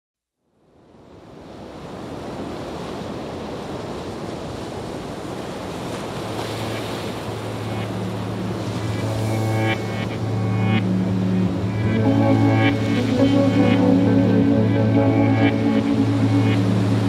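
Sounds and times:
wind: 0.3 - 17.0
surf rushing: 2.0 - 17.0
low steady drone: 7.3 - 17.0.

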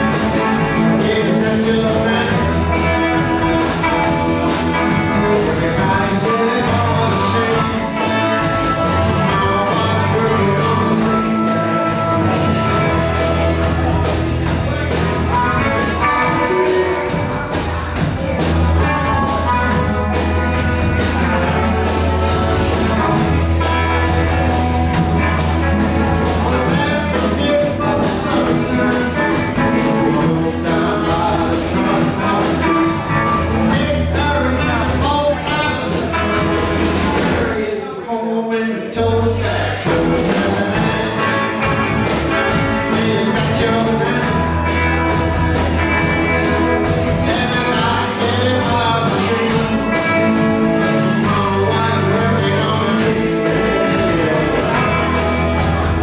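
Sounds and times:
harmonica: 0.0 - 17.8
electric guitars: 0.0 - 37.8, 38.9 - 56.0
upright bass: 0.0 - 56.0
drum beat: 39.8 - 56.0.

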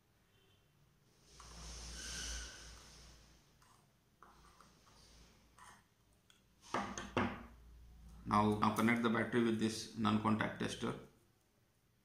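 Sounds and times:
knocks and clatter on tabletop: 6.7 - 7.5.

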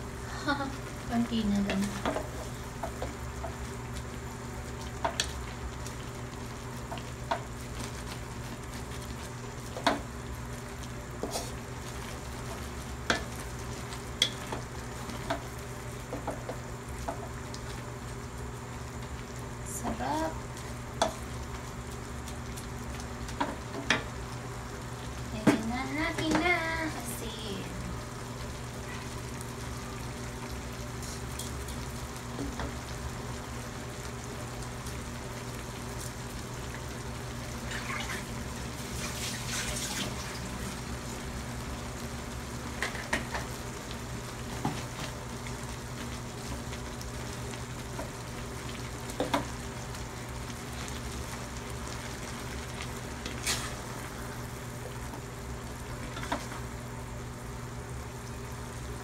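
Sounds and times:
bubbling sizzle in a wok: 0.0 - 59.0
wooden spatula knocking wok: 1.6 - 3.6, 16.1 - 17.3.

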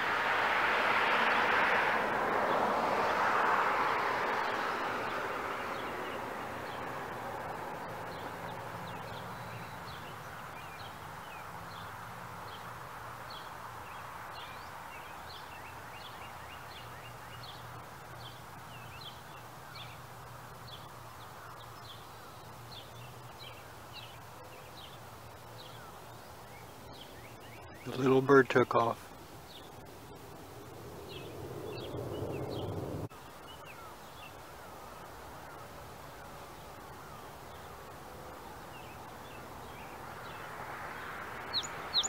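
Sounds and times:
small birds chirping: 4.4 - 42.0
loud rushing noise: 29.7 - 33.1.

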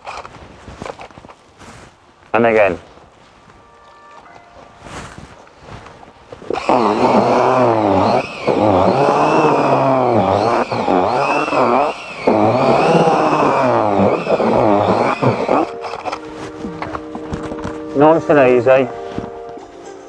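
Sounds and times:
cordless drill motor whine: 6.4 - 18.8.

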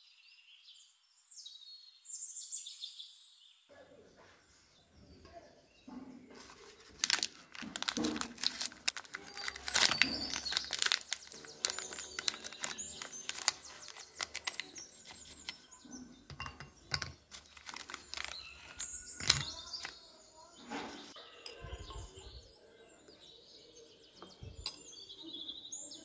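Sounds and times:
wrapper crinkling and rustling: 6.4 - 15.7, 17.3 - 20.0
chocolate bar snapping: 6.8 - 15.5
pieces set in ceramic bowl: 16.3 - 20.0.

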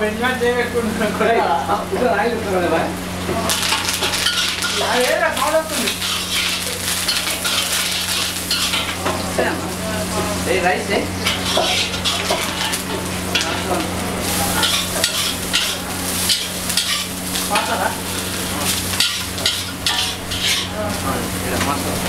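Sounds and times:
oil and vegetables sizzling in wok: 0.0 - 22.0
metal ladle scraping pan: 3.6 - 5.0, 5.8 - 9.2, 11.2 - 13.8, 14.5 - 17.6, 18.2 - 20.8.

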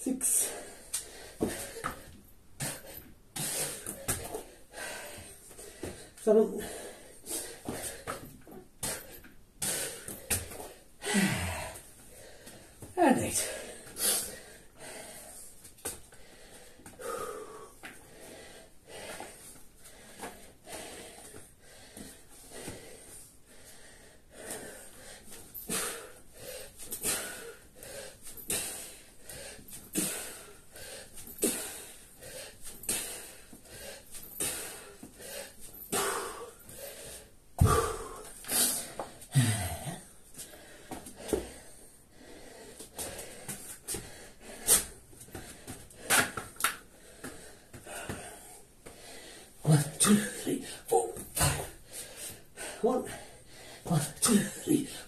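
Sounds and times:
man breathing heavily: 0.2 - 55.0
heavy thud: 37.6 - 38.2.

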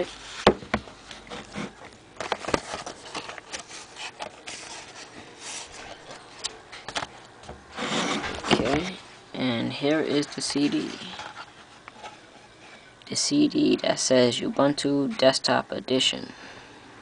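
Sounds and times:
paper and cardboard rustling: 0.0 - 7.1, 7.7 - 9.0, 10.1 - 12.3
camera knocking on wooden desk: 0.5 - 0.8.

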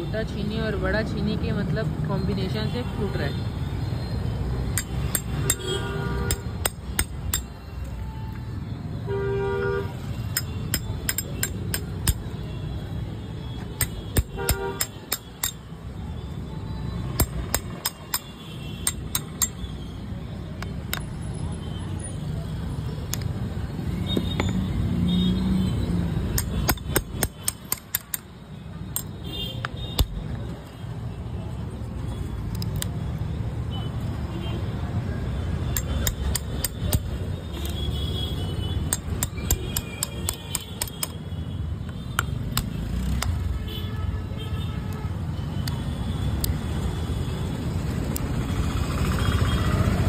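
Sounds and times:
chisel striking chisel metallic clinks: 4.7 - 5.7, 6.3 - 7.6, 10.3 - 12.4, 13.8 - 15.7, 17.2 - 19.8, 26.3 - 28.3, 35.7 - 37.2, 38.9 - 41.2
vehicle horn toot: 9.0 - 10.1, 14.3 - 15.0.

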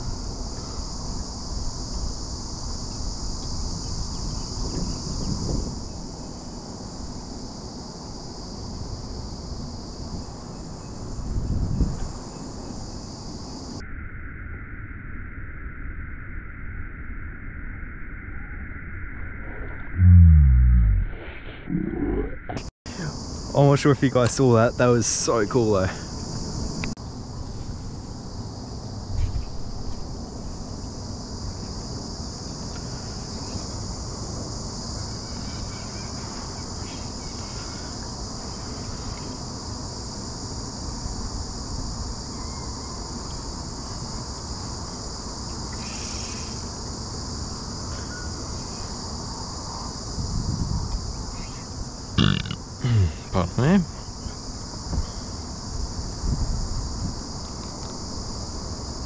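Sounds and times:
insects chirring: 0.0 - 59.0
short loud pitched sounds: 20.0 - 21.6, 52.2 - 53.4.

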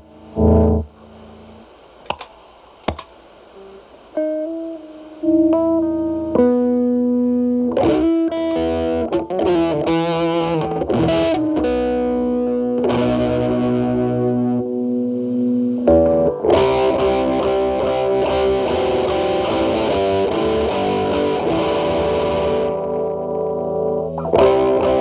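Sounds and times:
distorted electric guitar: 0.0 - 2.3, 2.9 - 25.0
footswitch clicks: 2.0 - 3.2.

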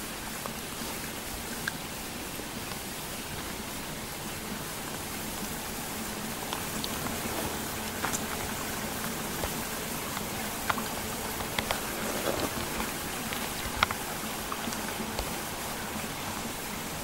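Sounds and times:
wet snow falling through trees: 0.0 - 17.0
drops ticking on branches: 4.4 - 17.0.

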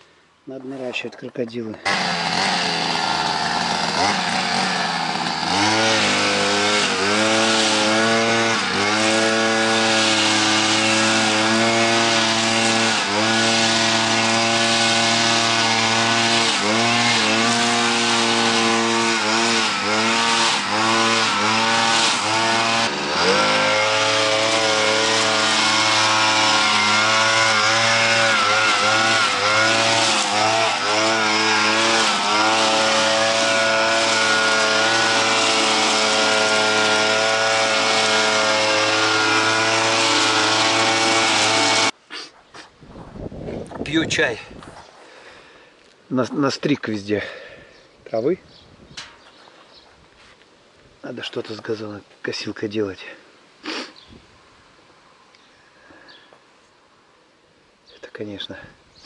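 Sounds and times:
string trimmer engine: 1.7 - 42.0.

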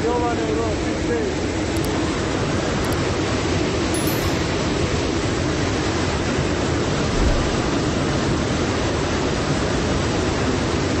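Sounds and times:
wind rushing: 7.0 - 7.9.

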